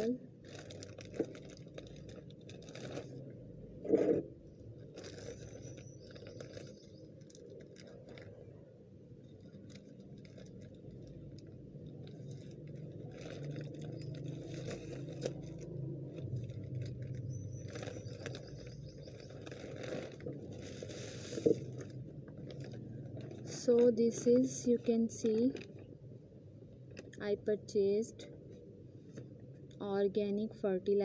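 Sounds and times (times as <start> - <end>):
plastic bag crinkling: 0.0 - 3.2, 4.5 - 26.0.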